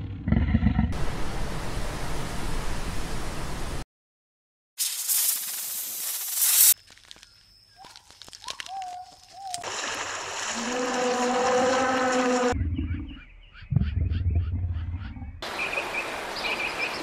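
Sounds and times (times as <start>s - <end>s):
water sloshing and splashing: 8.6s - 12.6s.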